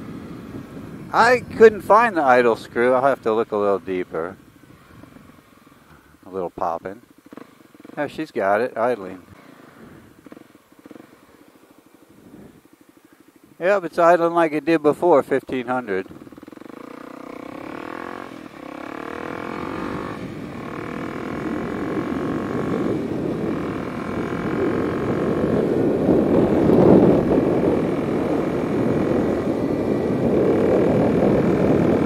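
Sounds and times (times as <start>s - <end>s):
rushing wind noise: 0.0s - 5.4s, 17.5s - 32.0s
motorcycle engine accelerating: 0.0s - 13.6s, 15.8s - 32.0s.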